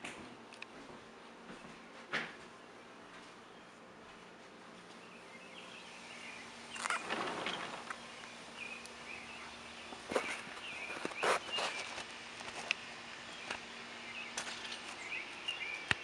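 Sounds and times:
small birds chirping: 4.8s - 16.0s
scuffing rustle: 9.9s - 12.1s.

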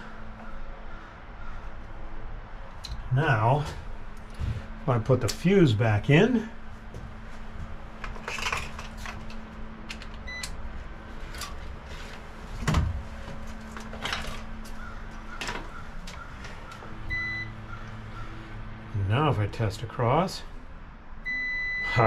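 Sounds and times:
electronic meter beep: 10.2s - 10.5s, 17.1s - 17.6s, 21.2s - 22.0s.

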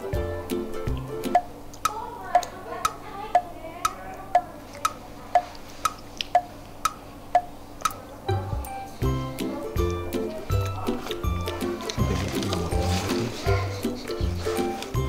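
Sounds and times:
background music: 0.0s - 1.6s, 8.3s - 15.0s
clock ticking: 0.9s - 10.1s.

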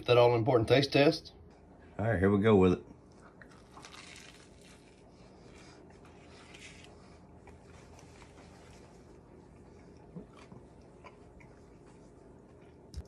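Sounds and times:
quiet chewing: 3.0s - 13.0s
person biting into sandwich: 3.4s - 5.1s.

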